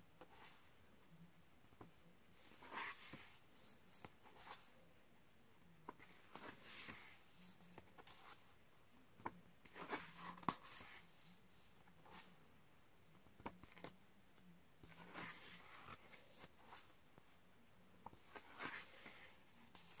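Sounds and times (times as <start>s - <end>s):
book pages turning: 1.8s - 4.8s, 5.9s - 8.5s, 9.6s - 12.4s, 13.3s - 14.0s, 14.8s - 17.0s, 18.0s - 20.0s.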